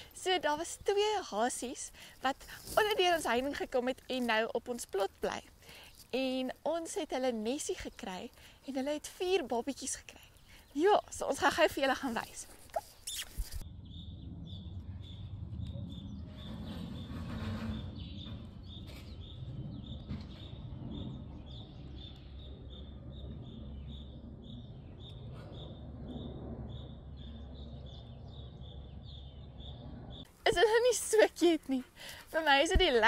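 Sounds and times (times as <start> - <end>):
brief rustle: 12.1 - 13.6
high-pitched chirping: 12.8 - 15.2
low rumble: 13.6 - 30.4.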